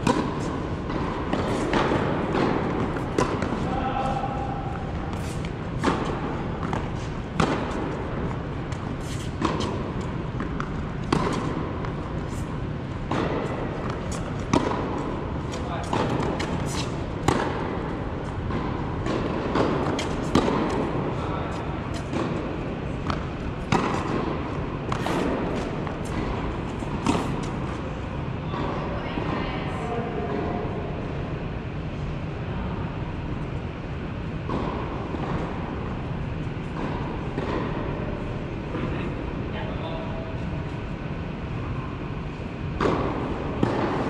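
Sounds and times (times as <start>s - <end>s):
tennis ball hit by rackets: 0.0s - 27.9s, 36.6s - 38.0s, 42.7s - 44.0s
tennis ball bouncing on court: 0.0s - 29.4s, 34.3s - 39.0s, 42.7s - 44.0s
steady background noise: 0.0s - 44.0s
tennis ball knocks with echo: 13.0s - 21.2s, 21.9s - 27.7s.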